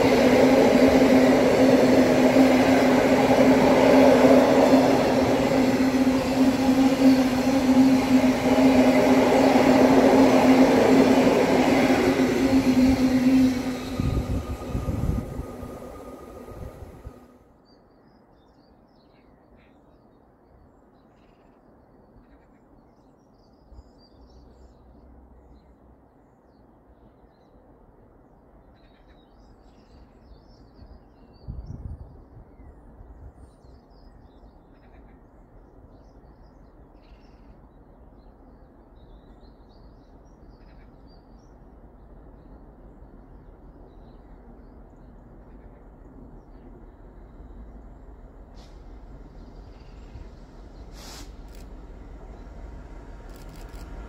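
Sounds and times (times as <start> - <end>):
train passing: 0.0 - 17.5, 35.7 - 54.0
low outdoor rumble: 44.9 - 54.0.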